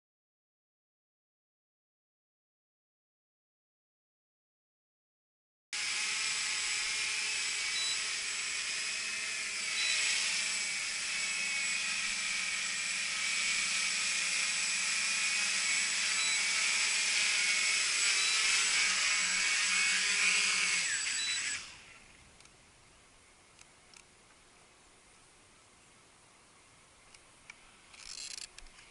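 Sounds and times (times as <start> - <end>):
drone propellers whining: 5.8 - 22.0
short high beeps: 7.8 - 8.0, 9.8 - 10.1, 16.2 - 16.4, 18.2 - 18.5, 21.1 - 21.6.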